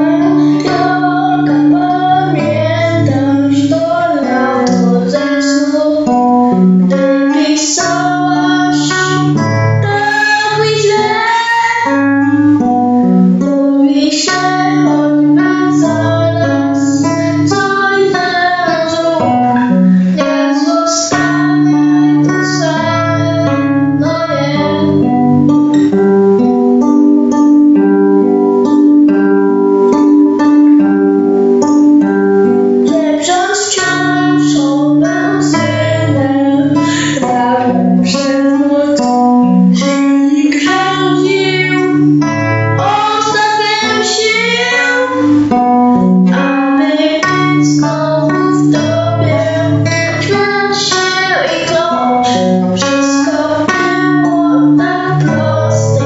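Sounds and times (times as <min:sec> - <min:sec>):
boy singing: 0:00.0 - 0:25.6, 0:32.8 - 0:42.2, 0:42.8 - 0:56.0
acoustic guitar strumming: 0:00.0 - 0:56.0.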